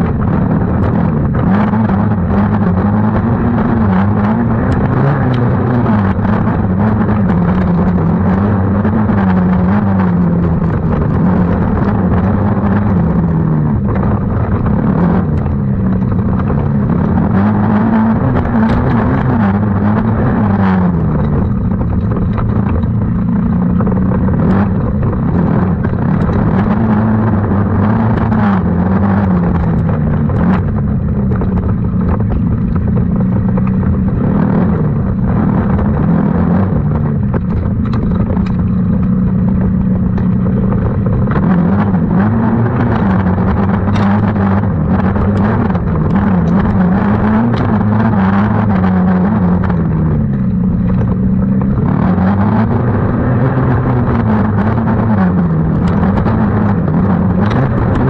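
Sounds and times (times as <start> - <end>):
sharp knocks and clatter: 0.0 - 52.7.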